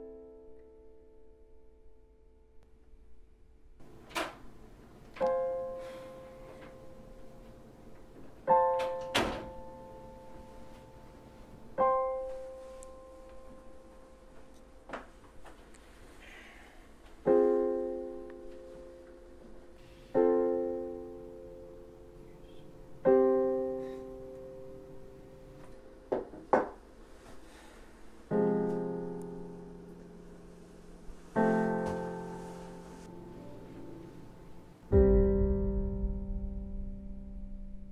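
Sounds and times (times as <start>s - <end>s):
piano chords: 0.0s - 2.7s, 3.8s - 14.9s, 17.2s - 27.2s, 28.0s - 37.9s
short sharp hit: 34.9s - 37.9s.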